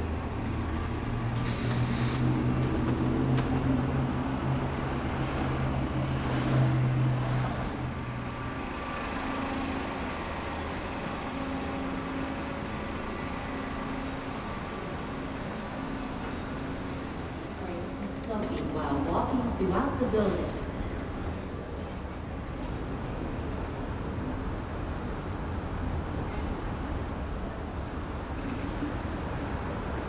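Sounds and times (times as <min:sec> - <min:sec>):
large vehicle engine humming: 0:00.0 - 0:30.0
traffic noise: 0:00.0 - 0:30.0
air brake hiss: 0:01.4 - 0:02.4.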